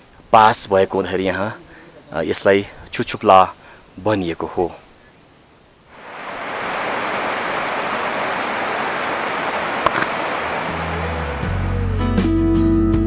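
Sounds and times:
stream rushing: 5.8s - 12.0s.

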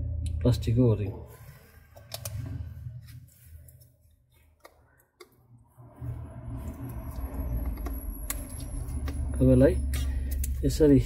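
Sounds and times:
low rubbing rumble: 5.6s - 11.0s.

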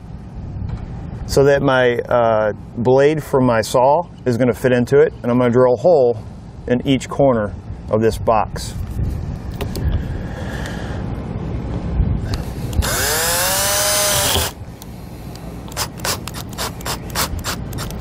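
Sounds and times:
cordless drill motor whine: 12.4s - 14.6s.

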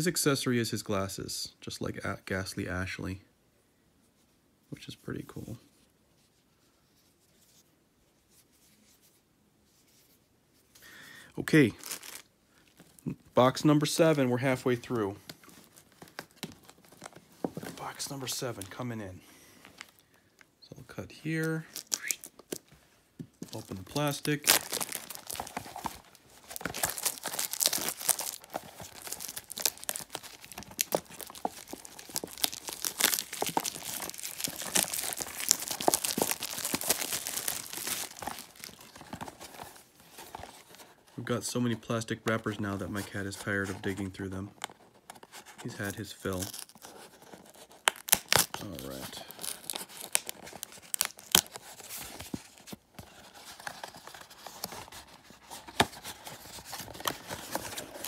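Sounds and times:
plastic wrap crinkling and tearing: 11.5s - 13.0s, 21.6s - 22.6s, 23.4s - 40.9s, 44.7s - 58.0s.

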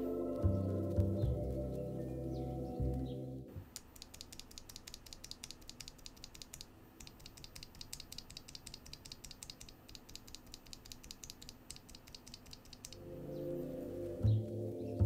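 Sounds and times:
keyboard switches clicking: 2.9s - 13.0s.

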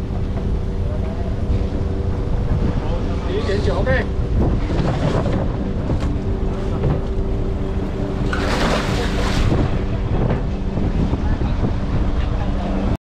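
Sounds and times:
boat engine drone: 0.0s - 13.0s
wind on microphone: 1.9s - 3.3s, 4.1s - 13.0s
fish splashing into water: 8.2s - 9.6s.

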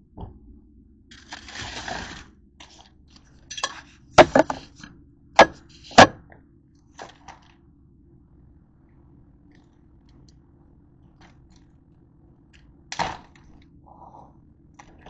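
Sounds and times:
kitchenware knocks and clinks: 3.5s - 4.7s
kitchenware scraping rustle: 3.5s - 4.8s.

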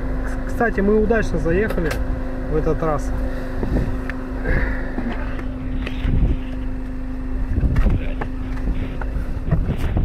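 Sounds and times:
vehicle engine humming: 0.0s - 10.0s
body knocks and rattles: 7.6s - 10.0s.

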